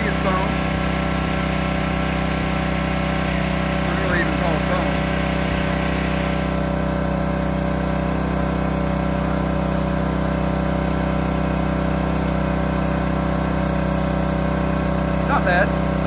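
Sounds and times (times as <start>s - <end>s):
pressure washer engine running: 0.0s - 16.0s.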